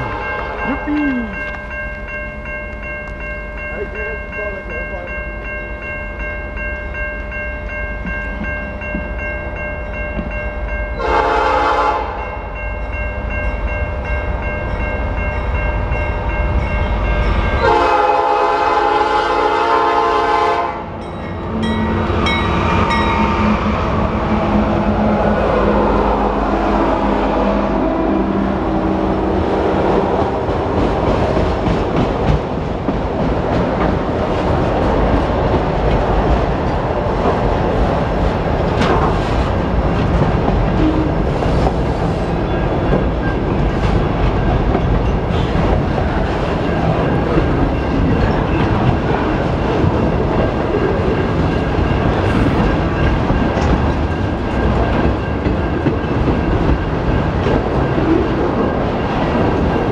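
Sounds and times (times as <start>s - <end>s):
crossing signal bell ringing: 0.0s - 25.0s, 40.7s - 59.9s
locomotive horn blasts: 11.0s - 12.3s, 17.6s - 21.0s
freight cars rumbling and clattering: 27.7s - 59.9s.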